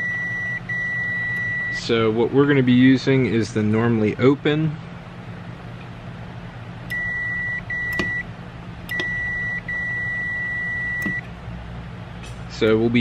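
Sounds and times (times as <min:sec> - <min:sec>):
multimeter continuity beep: 0:00.0 - 0:01.8, 0:06.9 - 0:08.3, 0:08.9 - 0:11.3
foot pedal switch clicks: 0:07.9 - 0:08.2, 0:08.9 - 0:09.2, 0:11.0 - 0:11.3.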